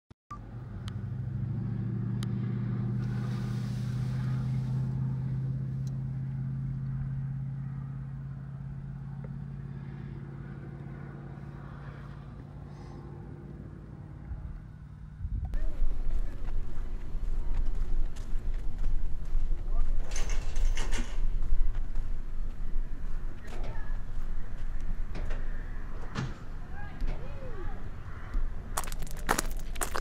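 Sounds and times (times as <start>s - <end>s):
low motor hum: 0.3s - 20.0s.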